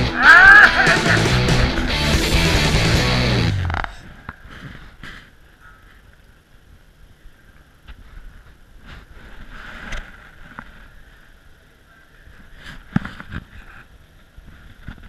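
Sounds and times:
faint steady hiss: 3.9s - 15.0s.

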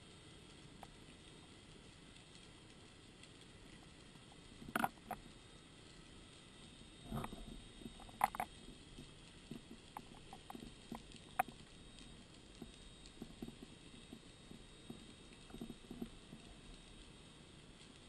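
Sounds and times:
small underwater clicks and knocks: 0.2s - 18.0s.

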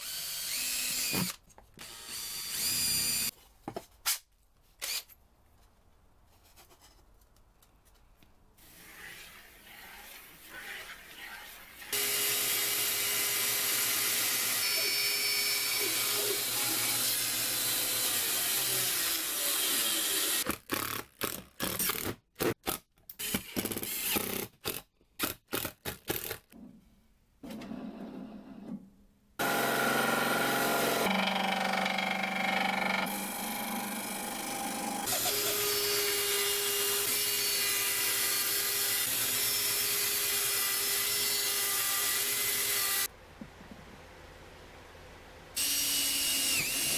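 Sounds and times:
drill driving screws: 0.0s - 3.3s, 45.6s - 46.9s
band saw cutting plywood: 29.4s - 43.1s.

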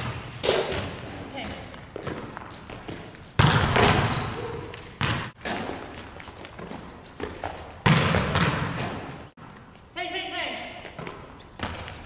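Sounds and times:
volleyball bouncing on hardwood: 0.0s - 5.8s, 6.6s - 9.1s
sneaker squeaks: 0.0s - 9.3s, 10.8s - 12.0s.

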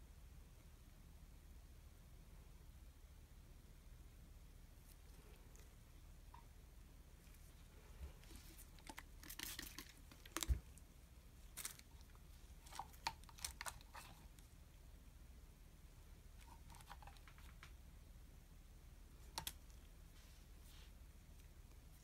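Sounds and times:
gloved hands rustling and crinkling: 7.2s - 14.6s.

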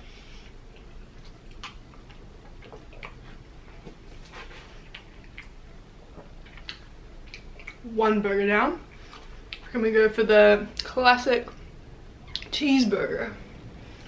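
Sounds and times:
person chewing: 0.4s - 7.9s.

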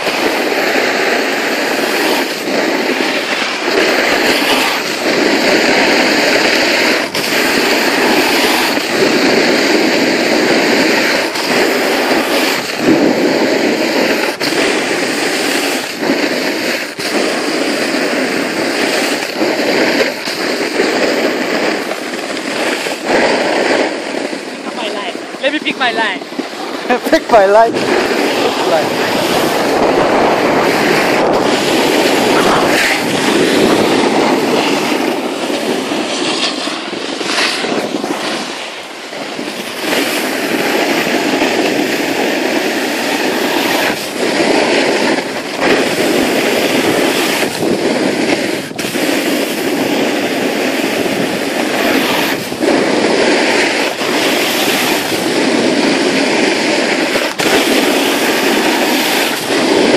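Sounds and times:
snowboard scraping on snow: 0.0s - 59.9s
wind on microphone: 0.0s - 59.9s.

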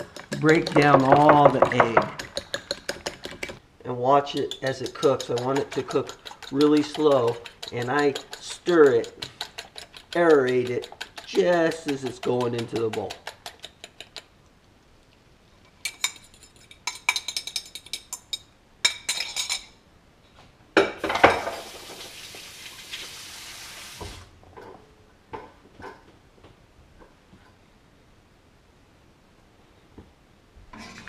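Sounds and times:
fork clinking against ceramic bowl: 0.0s - 3.3s, 4.3s - 14.2s
steady hiss: 21.0s - 24.3s.

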